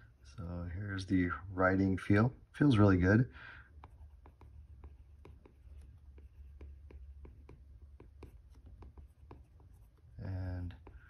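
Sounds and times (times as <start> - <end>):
stylus tapping on glass screen: 3.8 - 9.7.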